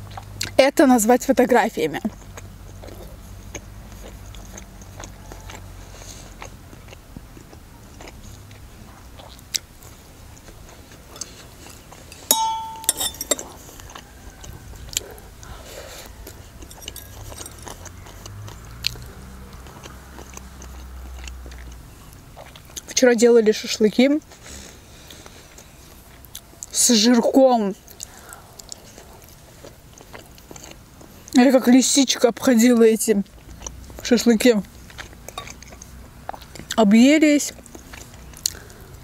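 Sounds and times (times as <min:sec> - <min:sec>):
chewing and biting food: 0:00.0 - 0:00.6, 0:01.9 - 0:23.0, 0:24.2 - 0:26.8, 0:27.8 - 0:31.6, 0:32.4 - 0:36.9, 0:37.5 - 0:39.0
fork clinking on dish: 0:12.1 - 0:13.5, 0:16.6 - 0:17.8
low hum: 0:12.1 - 0:13.5.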